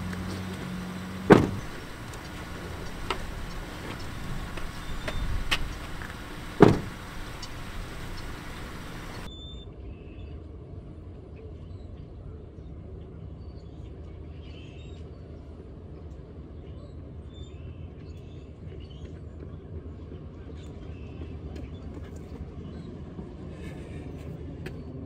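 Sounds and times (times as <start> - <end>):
truck door slamming: 0.0 - 9.3.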